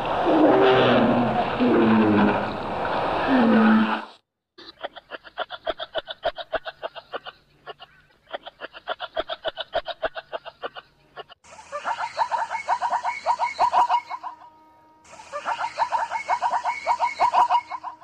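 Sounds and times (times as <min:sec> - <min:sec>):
loud pulsed animal call: 0:00.0 - 0:04.1.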